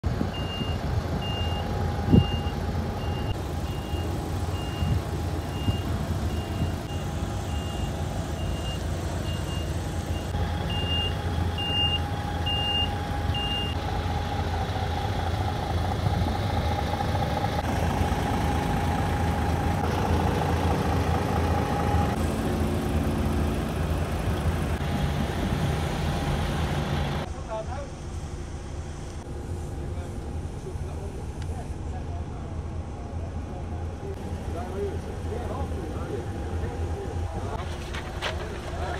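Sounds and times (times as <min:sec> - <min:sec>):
diesel truck engine idling: 0:00.0 - 0:38.9
reversing alarm beeping: 0:00.3 - 0:13.8.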